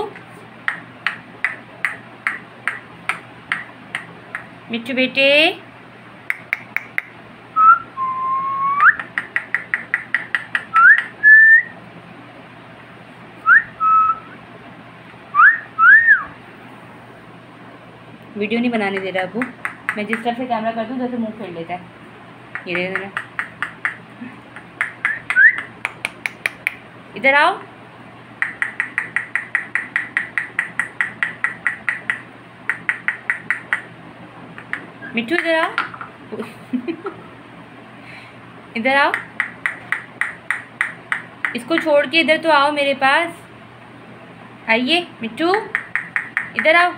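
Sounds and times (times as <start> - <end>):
whistled notes: 7.6 - 9.0, 10.8 - 11.7, 13.4 - 14.4, 15.4 - 16.3, 25.1 - 25.7
sharp clicks: 28.4 - 33.9, 45.5 - 46.7.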